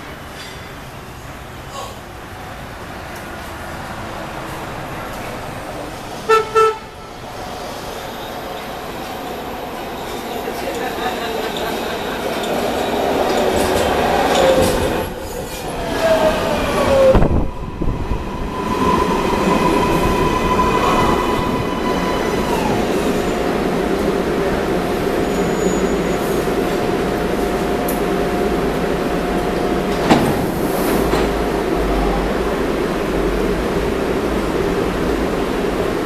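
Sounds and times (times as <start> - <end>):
train doors opening knock: 29.9 - 31.4.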